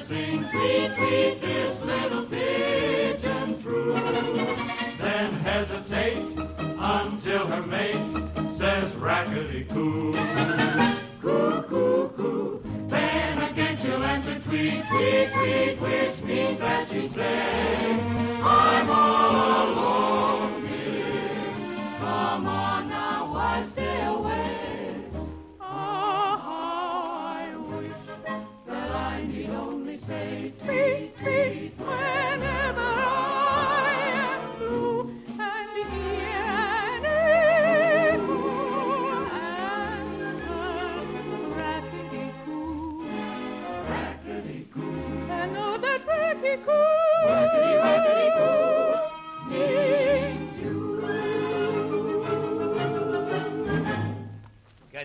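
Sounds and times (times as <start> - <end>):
operetta singing: 0.0 - 54.5
orchestra playing: 3.7 - 11.8.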